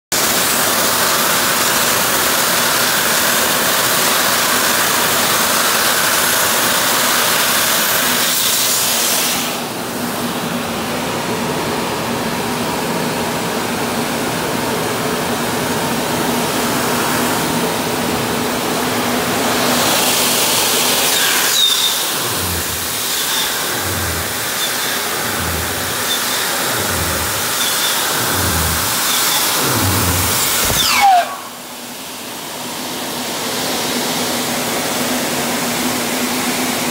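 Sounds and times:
cleaning machine rushing noise: 18.8 - 32.0
motor hum: 20.3 - 31.8.

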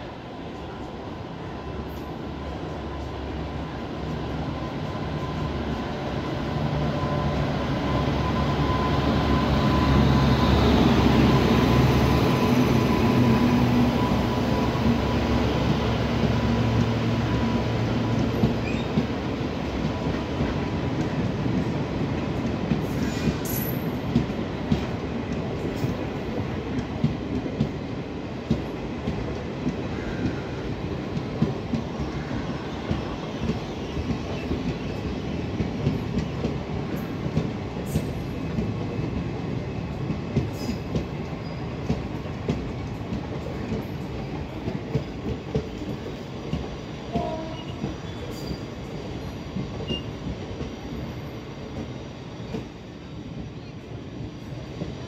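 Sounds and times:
electric locomotive hum: 0.0 - 25.7
train wheels clicking over rail joints: 28.4 - 53.6.

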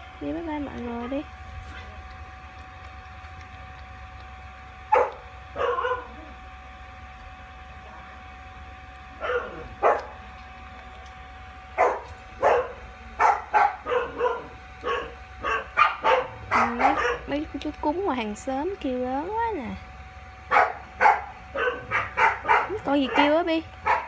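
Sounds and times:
dog barking: 4.9 - 6.4, 9.2 - 10.2, 11.8 - 17.4, 20.5 - 24.0.

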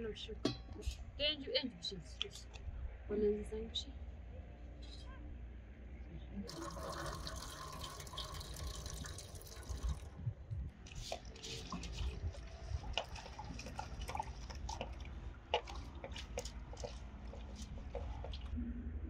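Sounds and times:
hands working grain in water: 6.5 - 10.1, 10.8 - 18.6
water poured into metal tin: 6.5 - 10.1
drips and small splashes: 6.5 - 10.2, 10.8 - 18.6.

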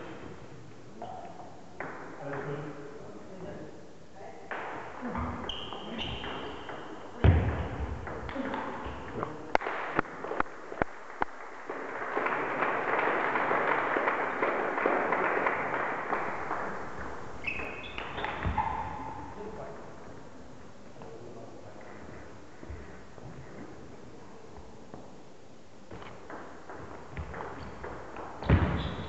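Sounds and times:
spectators clapping: 9.6 - 17.2.

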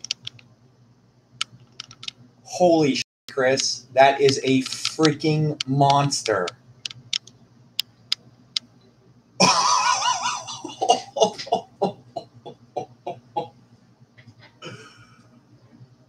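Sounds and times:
sharp clicks: 0.0 - 0.5, 1.4 - 2.2, 3.5 - 8.7
person laughing: 9.4 - 13.5.

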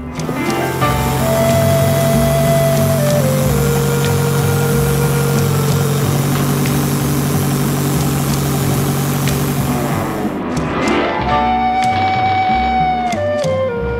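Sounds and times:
engine idling: 0.3 - 10.4.

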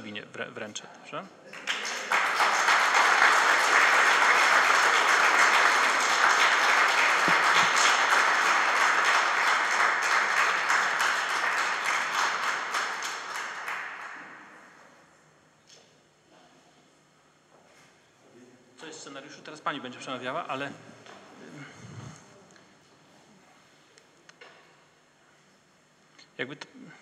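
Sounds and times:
audience applauding: 1.5 - 14.6.

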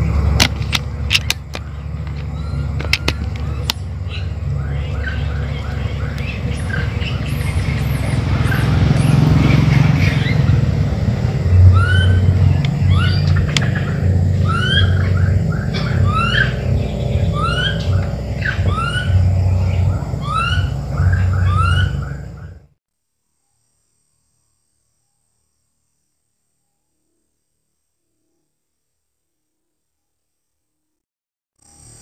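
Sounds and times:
birds chirping: 0.0 - 22.7
loud low pulsing rumble: 0.0 - 22.8.

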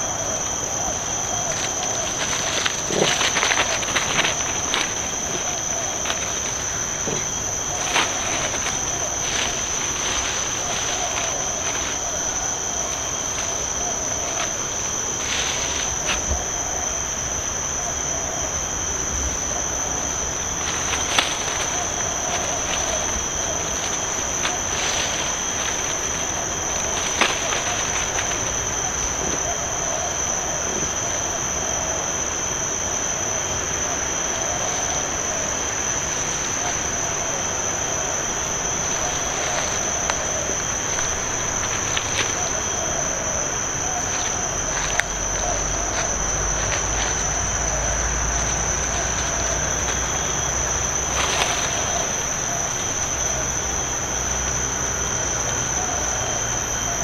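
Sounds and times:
insects droning: 0.0 - 57.0.

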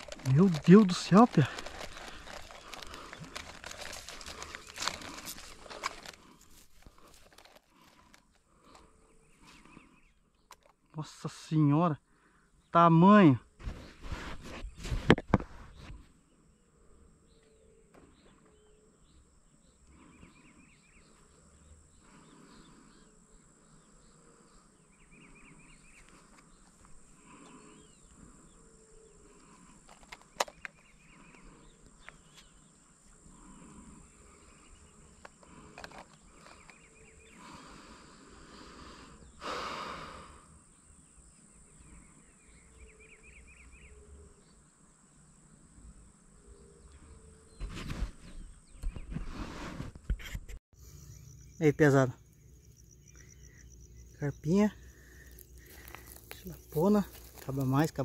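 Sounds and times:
high-pitched insect buzz: 50.8 - 58.0.

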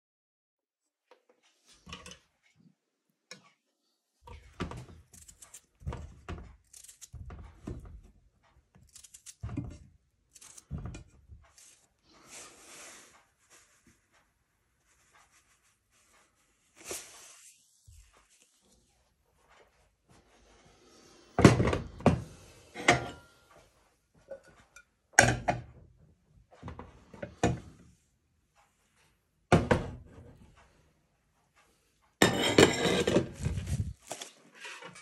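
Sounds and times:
knife cutting potatoes: 4.3 - 11.9.

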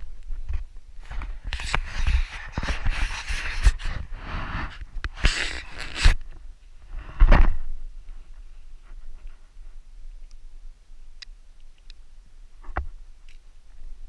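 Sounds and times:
rubbing against camera body: 1.0 - 6.2.

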